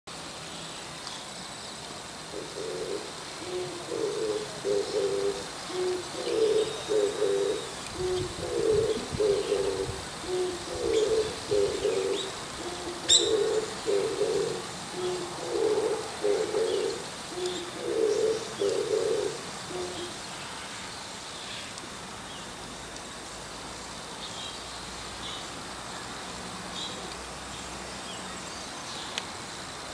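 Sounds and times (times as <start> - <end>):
small birds chirping faintly: 0.1 - 29.9
dove cooing: 2.3 - 20.1.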